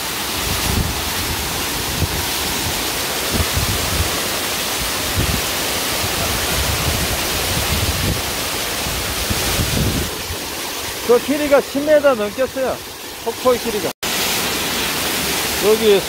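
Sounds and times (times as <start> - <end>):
waterfall rushing onto rock: 0.0 - 16.0.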